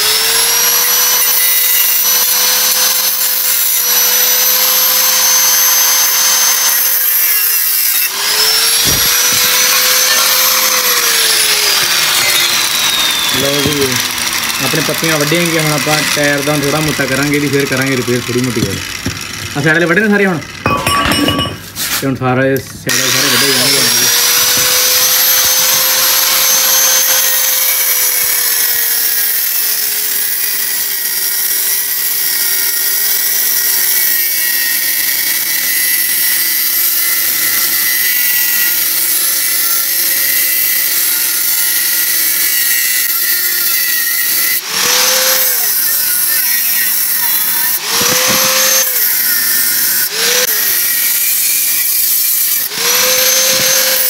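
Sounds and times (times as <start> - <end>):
angle grinder cutting metal: 0.0 - 54.0.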